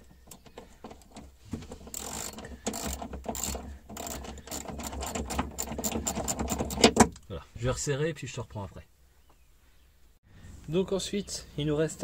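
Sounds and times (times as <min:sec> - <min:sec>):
ratchet wrench clicking: 0:01.9 - 0:06.8.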